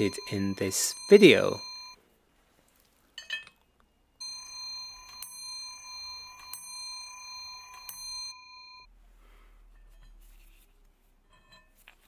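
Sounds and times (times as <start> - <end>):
clock hammer striking bell: 0.0 - 2.0, 4.2 - 8.9.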